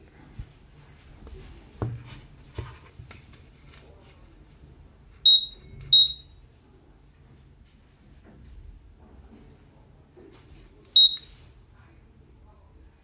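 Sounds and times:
soft handling knocks: 0:01.3 - 0:03.4
smoke detector beeps: 0:05.3 - 0:06.4, 0:11.0 - 0:11.3.

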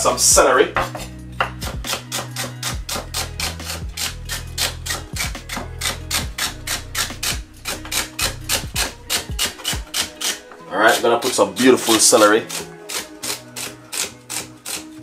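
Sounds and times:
knife chopping on wooden board: 0:00.8 - 0:11.0.

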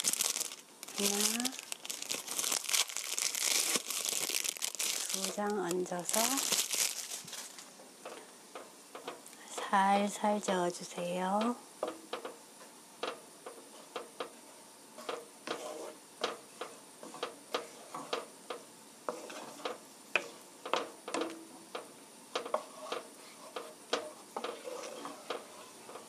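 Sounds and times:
wooden spatula scraping a pan: 0:13.0 - 0:26.0.

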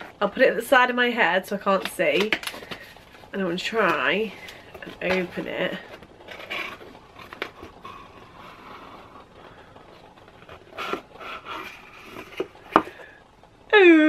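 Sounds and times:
cardboard rubbing and scraping: 0:02.6 - 0:13.0.

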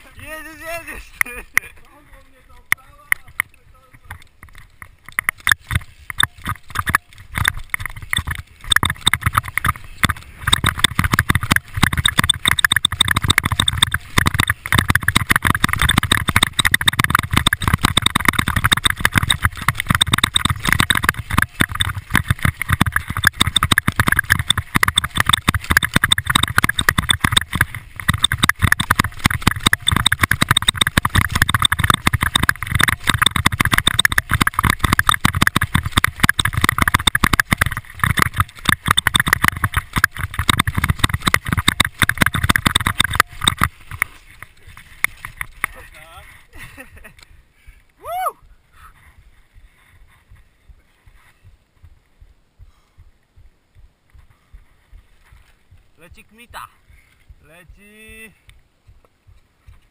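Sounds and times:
mountain bike rattling downhill: 0:00.0 - 0:47.8
tyre noise on dirt: 0:02.5 - 0:47.2.

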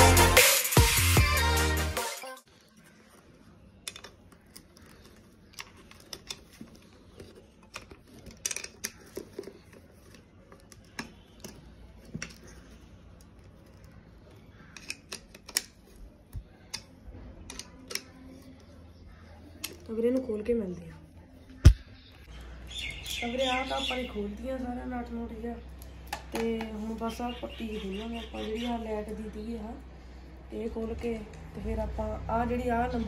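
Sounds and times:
small metal clicks and taps: 0:14.7 - 0:18.3.

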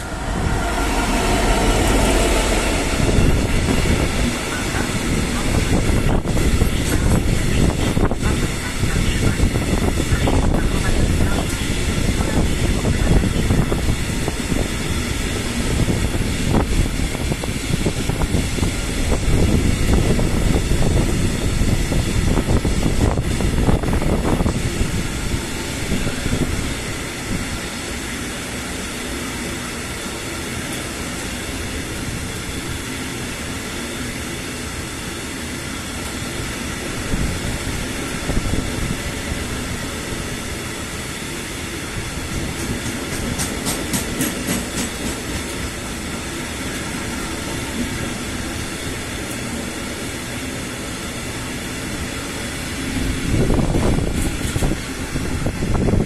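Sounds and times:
train wheels rumbling on rails: 0:00.0 - 0:56.0.

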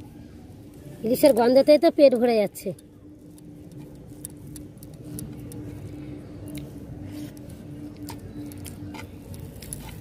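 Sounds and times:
steady low hum: 0:00.0 - 0:10.0
fingers squishing rice: 0:02.8 - 0:10.0.

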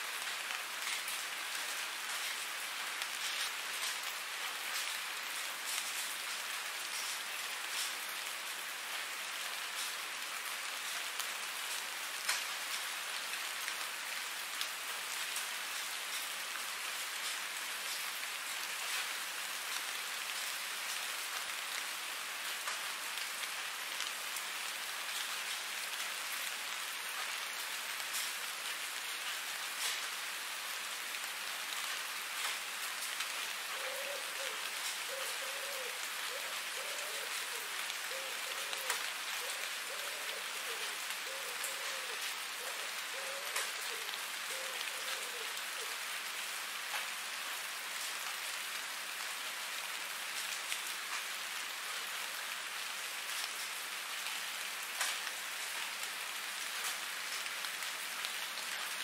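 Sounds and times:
steady rain: 0:00.0 - 0:59.0.

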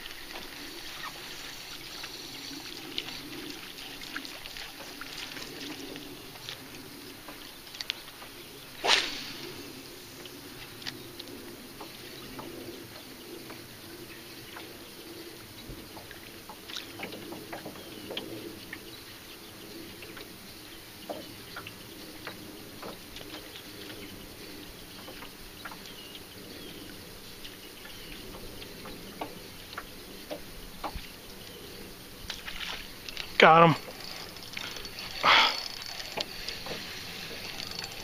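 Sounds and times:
fishing reel whirring: 0:00.0 - 0:06.6, 0:32.4 - 0:38.0
small water splashes: 0:00.0 - 0:08.1, 0:16.0 - 0:17.2, 0:32.2 - 0:38.0.

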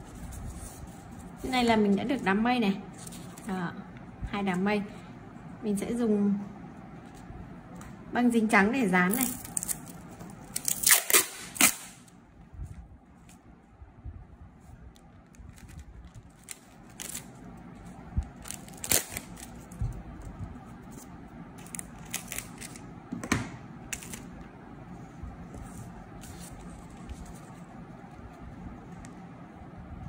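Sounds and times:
plastic tape crackling: 0:09.1 - 0:12.2, 0:15.1 - 0:22.9
scissors cutting tape: 0:10.5 - 0:12.0.

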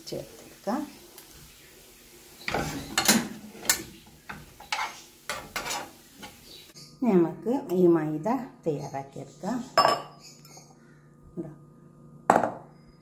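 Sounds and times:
metal spoon scraping frying pan: 0:02.4 - 0:06.6.

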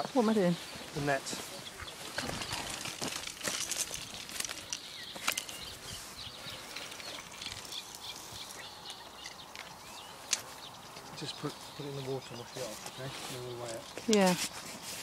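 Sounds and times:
birds chirping: 0:00.0 - 0:14.8.

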